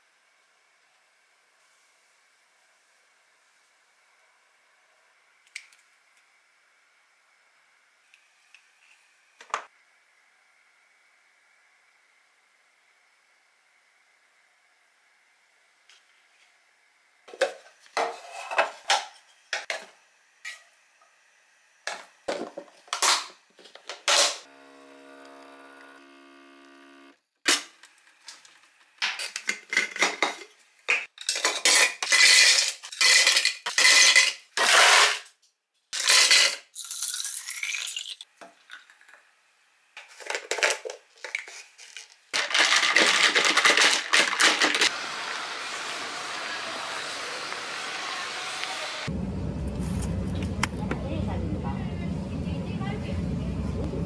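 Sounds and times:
ice cubes clinking in glass jar: 0:31.2 - 0:35.1, 0:36.0 - 0:39.1, 0:40.3 - 0:44.9.

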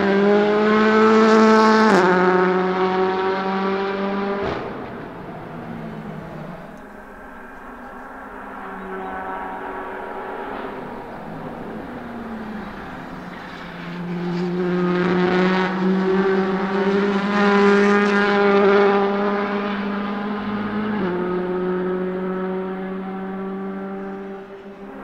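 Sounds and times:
race car engine passing at speed: 0:00.0 - 0:25.0.

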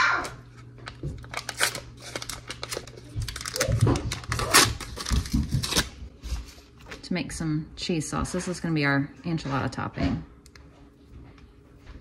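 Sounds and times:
paper wrapper crinkling and tearing: 0:00.8 - 0:06.0.

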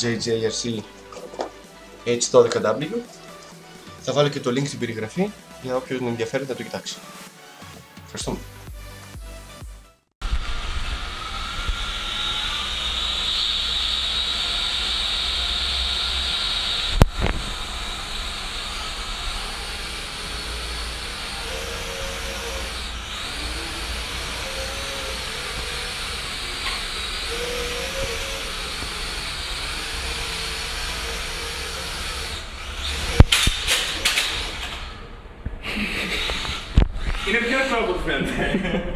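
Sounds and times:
toy drone propellers whirring: 0:10.4 - 0:35.0, 0:35.7 - 0:37.5.

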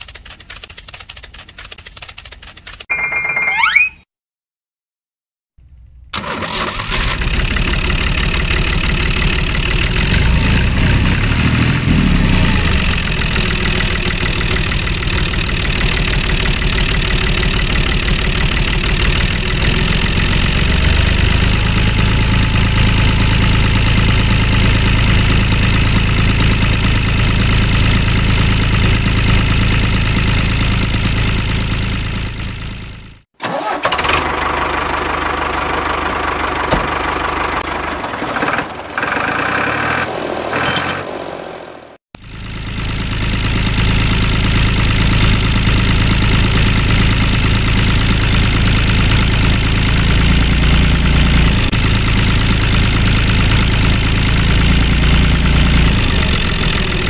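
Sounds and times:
tractor engine running: 0:00.0 - 0:02.9, 0:06.1 - 0:41.3, 0:42.2 - 0:57.0
engine starting up: 0:06.1 - 0:31.9, 0:32.6 - 0:41.0, 0:43.5 - 0:57.0.

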